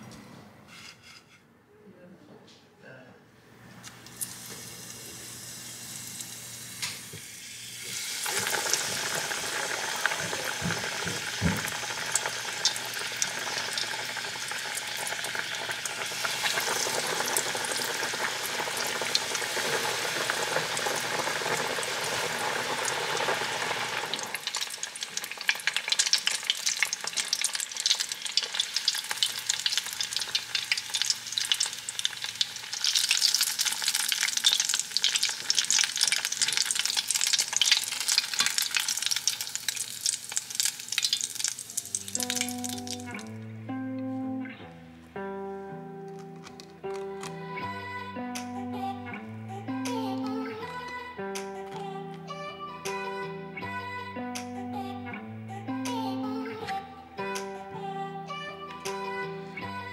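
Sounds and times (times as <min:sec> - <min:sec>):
oil sizzling while deep-frying: 0:04.1 - 0:43.3
oil pouring into a pot: 0:07.3 - 0:43.2.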